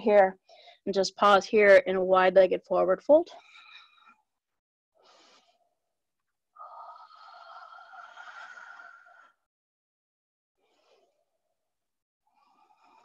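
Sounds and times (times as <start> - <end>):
faint breathing: 0.4 - 0.9, 3.3 - 4.3, 5.0 - 5.8, 6.6 - 9.5, 12.3 - 13.0.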